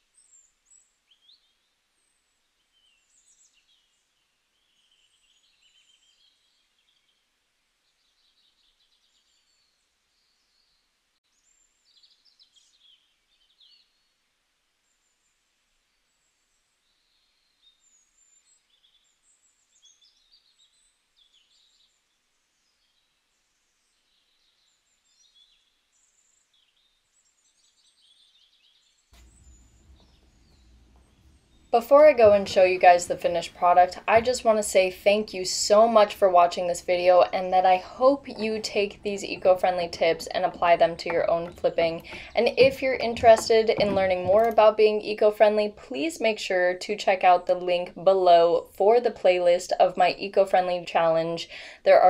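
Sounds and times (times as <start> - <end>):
small birds chirping: 0.1 - 14.1, 15.9 - 47.4
background hiss: 29.2 - 42.6.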